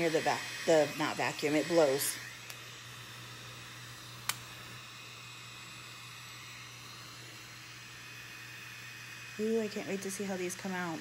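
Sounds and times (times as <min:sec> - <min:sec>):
small fan whirring: 0:00.0 - 0:11.0
sharp click: 0:04.2 - 0:04.4.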